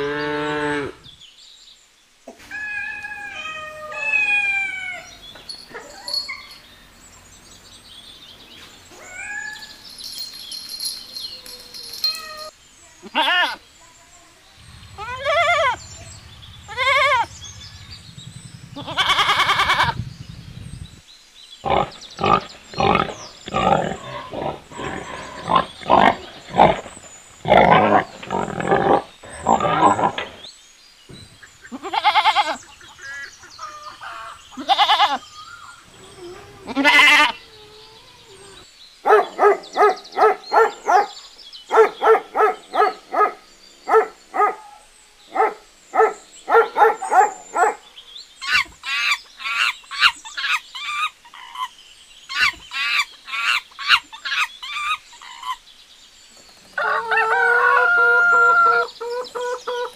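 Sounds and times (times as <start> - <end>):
goat bleating: 13.1 - 13.6, 31.7 - 32.6, 34.6 - 35.2, 36.7 - 37.4
pigs grunting: 21.6 - 30.5
dog barking: 39.0 - 47.9.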